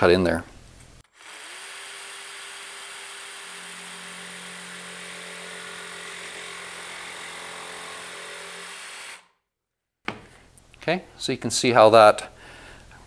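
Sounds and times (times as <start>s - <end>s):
jigsaw running: 1.1s - 9.3s.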